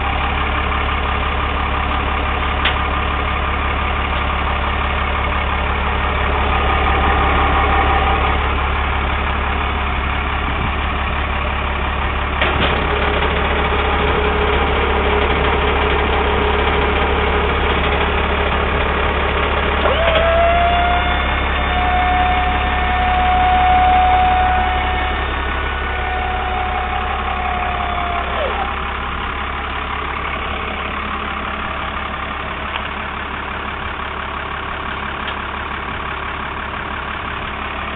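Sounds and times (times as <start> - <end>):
diesel engine idling: 0.0 - 37.9
hydraulic pump motor whining: 12.4 - 32.2.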